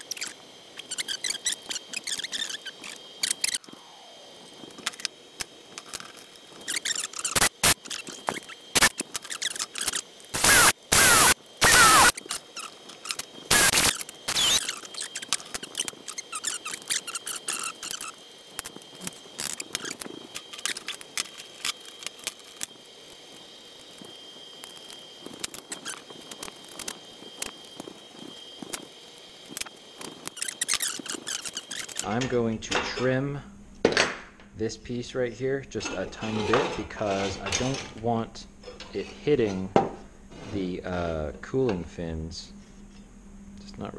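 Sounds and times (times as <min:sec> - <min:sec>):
cordless drill whining: 0:09.8 - 0:12.3, 0:13.5 - 0:15.2
small metal parts clattering: 0:35.8 - 0:38.0.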